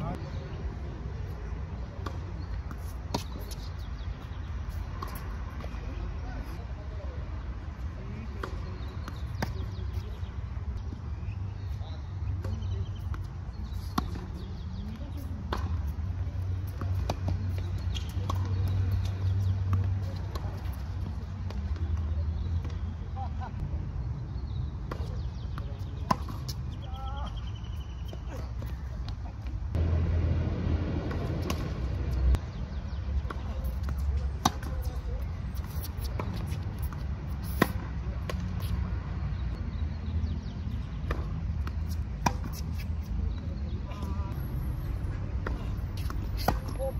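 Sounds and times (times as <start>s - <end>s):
tennis ball bouncing: 2.0s - 6.0s, 12.3s - 22.9s, 24.9s - 29.9s, 31.0s - 38.8s, 40.2s - 44.1s, 45.3s - 46.9s
racket striking tennis ball: 31.0s - 31.9s, 33.2s - 38.5s, 41.0s - 42.8s, 45.4s - 46.8s
rackets striking tennis ball: 31.0s - 32.1s.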